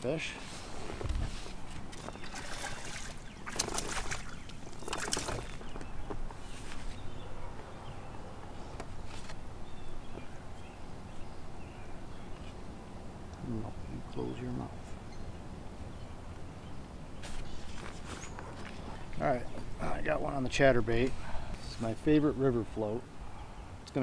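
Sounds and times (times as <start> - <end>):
fish splashing at water surface: 2.1 - 5.6.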